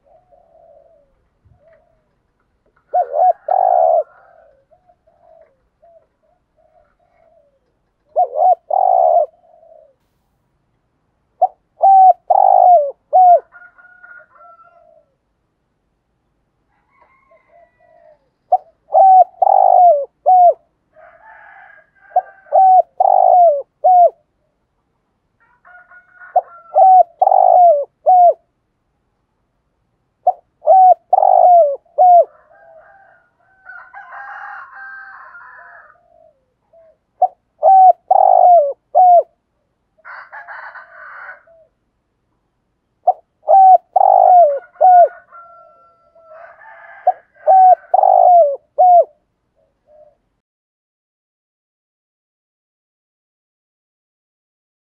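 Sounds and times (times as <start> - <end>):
dove cooing: 0.0 - 10.0, 11.4 - 15.2, 16.9 - 24.5, 25.4 - 28.5, 30.2 - 39.4, 40.0 - 41.8, 43.0 - 50.4.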